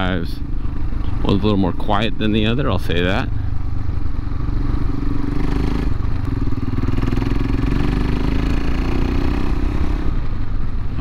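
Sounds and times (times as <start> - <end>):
motorcycle engine running: 0.0 - 11.0
wind and road noise: 0.0 - 11.0.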